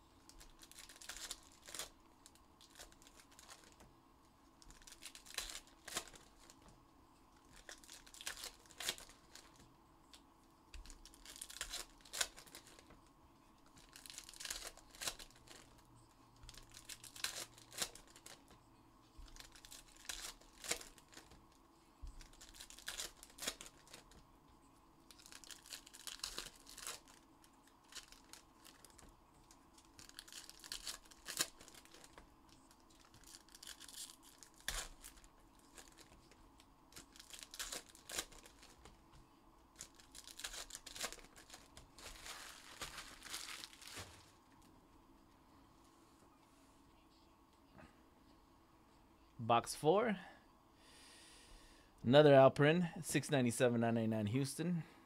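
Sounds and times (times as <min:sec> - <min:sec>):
wrappers tearing and crinkling: 0:00.2 - 0:03.8, 0:04.6 - 0:06.6, 0:07.4 - 0:09.6, 0:10.8 - 0:13.0, 0:13.6 - 0:15.8, 0:16.4 - 0:18.6, 0:19.2 - 0:21.4, 0:22.2 - 0:24.2, 0:25.0 - 0:38.9, 0:39.7 - 0:44.4.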